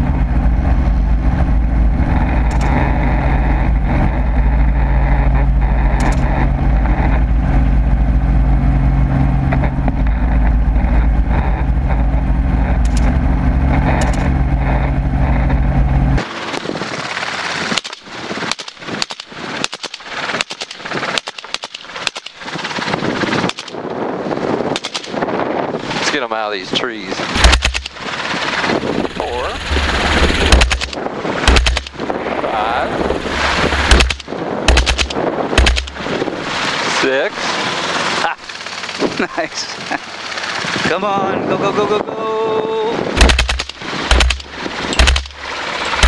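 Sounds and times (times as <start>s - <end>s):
helicopter engine and rotor drone: 0.0s - 46.0s
rapid gunshots: 16.2s - 23.8s, 24.7s - 25.2s, 27.3s - 36.2s, 43.2s - 46.0s.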